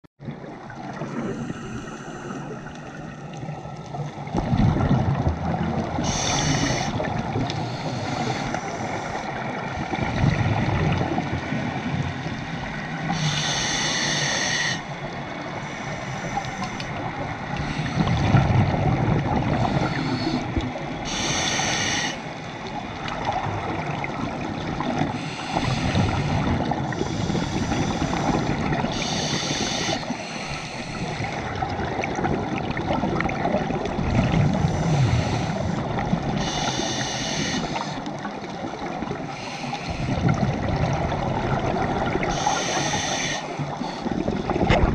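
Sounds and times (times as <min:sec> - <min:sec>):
exhalation bubbling: 0:04.3 - 0:07.5, 0:44.0 - 0:44.9
regulator inhalation hiss: 0:06.0 - 0:09.3, 0:13.1 - 0:15.0, 0:15.6 - 0:16.9, 0:19.6 - 0:22.4, 0:25.2 - 0:31.5, 0:34.6 - 0:35.8, 0:36.4 - 0:38.0, 0:39.3 - 0:40.2, 0:42.2 - 0:44.1.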